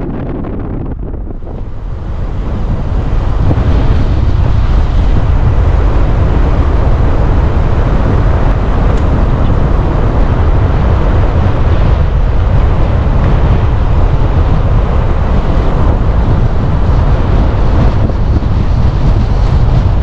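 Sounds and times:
vehicle road noise: 0.0s - 20.0s
wind rumble on microphone: 0.0s - 20.0s.

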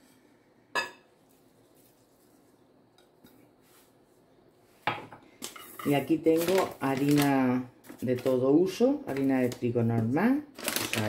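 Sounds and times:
ceramic pot clinking: 0.7s - 1.1s.

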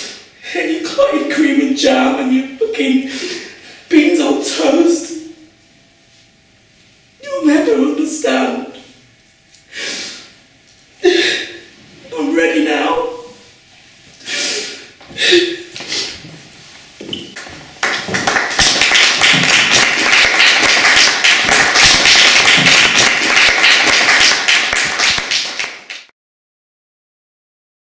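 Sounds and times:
audience applauding: 17.4s - 26.1s.

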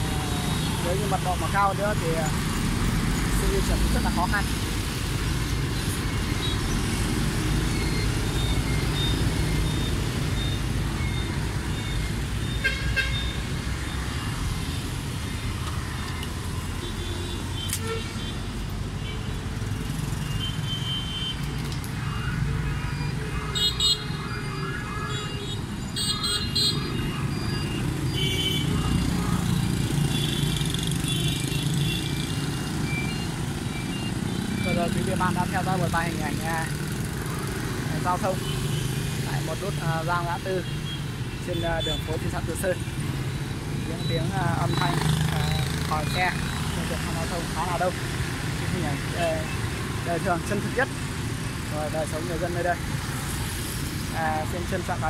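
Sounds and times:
motorbike and truck traffic: 0.0s - 55.0s.

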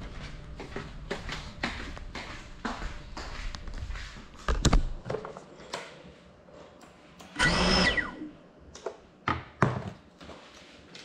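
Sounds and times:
drone motors whining: 7.4s - 8.4s.

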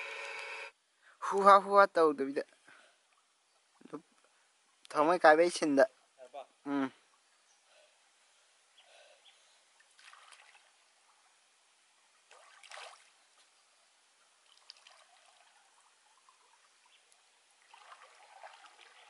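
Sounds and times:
river water sloshing around wader: 8.6s - 19.0s.

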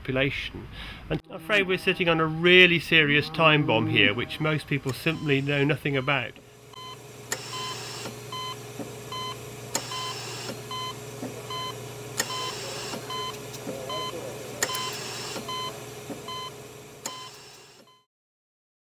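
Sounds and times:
short electronic beeps: 9.2s - 14.1s, 14.7s - 15.7s.

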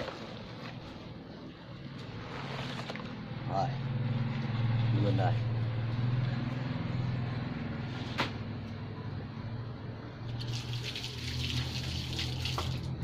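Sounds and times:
eels splashing in water: 10.4s - 13.0s.

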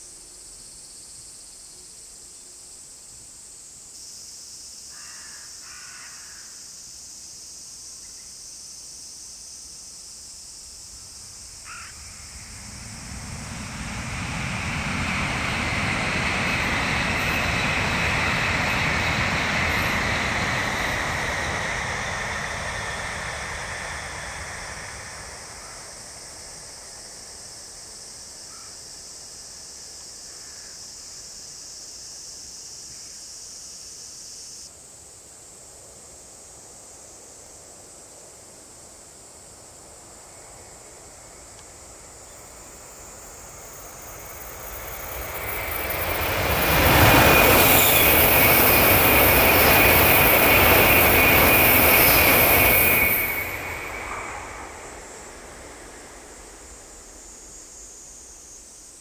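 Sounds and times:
high-speed train passing: 10.4s - 30.1s, 37.1s - 59.0s.

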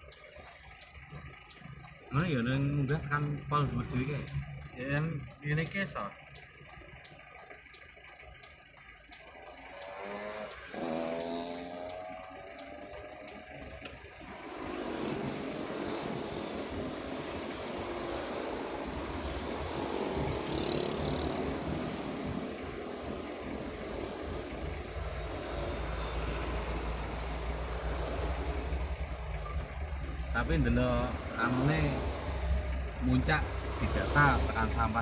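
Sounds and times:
vehicle engine idling: 0.0s - 35.0s
passing cars road noise: 9.4s - 35.0s.

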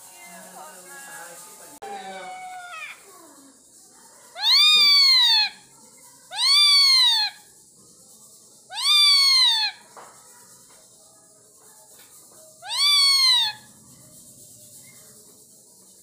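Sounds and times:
parakeet calling: 4.4s - 5.6s, 6.3s - 7.5s, 8.7s - 9.8s, 12.6s - 13.7s.

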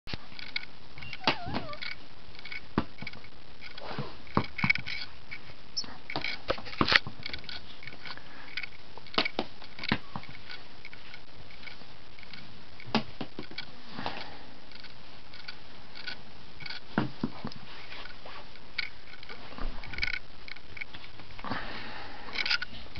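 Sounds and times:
brief wavering squeak: 1.0s - 1.8s.

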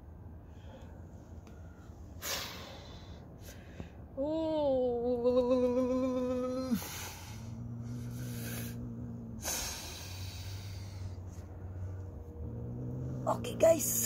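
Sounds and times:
cat growling: 5.6s - 14.0s
cat hissing: 6.7s - 14.0s.

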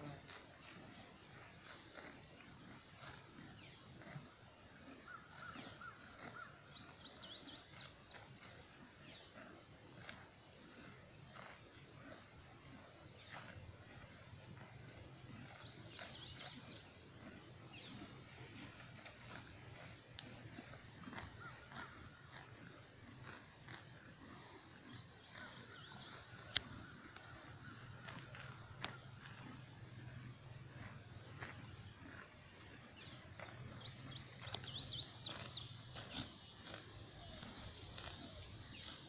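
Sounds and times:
horses chewing grass: 0.0s - 39.0s
small bird chirping: 24.2s - 26.9s, 33.4s - 39.0s.

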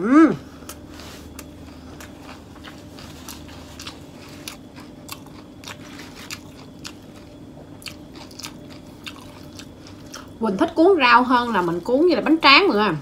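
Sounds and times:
wet chewing with crunches: 0.6s - 10.4s.

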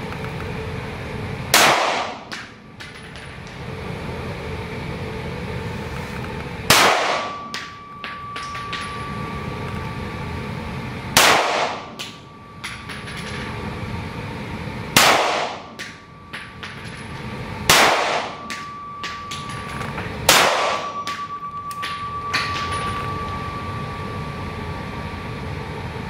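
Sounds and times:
pistol shots echoing: 1.6s - 2.2s, 6.7s - 7.4s, 11.2s - 11.8s, 15.0s - 15.6s, 17.7s - 18.4s, 20.3s - 20.9s.

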